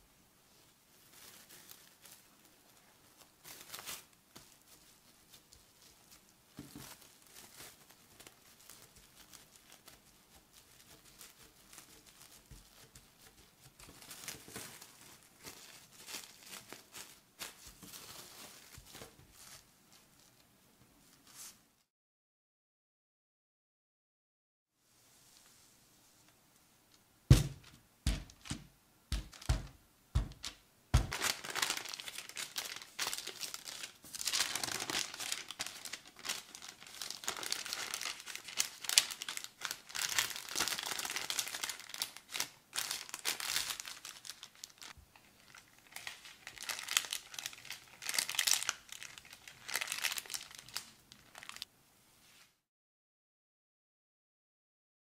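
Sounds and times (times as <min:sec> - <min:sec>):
baking paper crinkling: 0:00.5 - 0:20.4, 0:21.0 - 0:21.9, 0:27.3 - 0:51.7
sharp knocks: 0:27.3 - 0:31.2.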